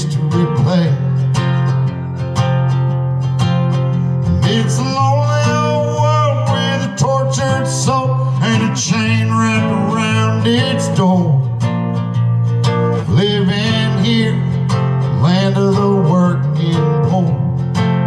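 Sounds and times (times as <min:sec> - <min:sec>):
man singing: 0:00.0 - 0:01.6, 0:04.2 - 0:11.7, 0:12.8 - 0:18.0
acoustic guitar strumming: 0:00.0 - 0:18.0.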